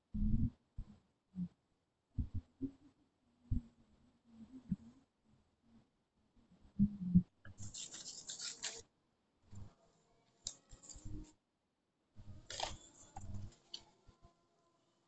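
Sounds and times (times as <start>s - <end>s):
paper rustling and folding: 7.6s - 8.9s, 10.4s - 11.1s, 12.4s - 13.9s.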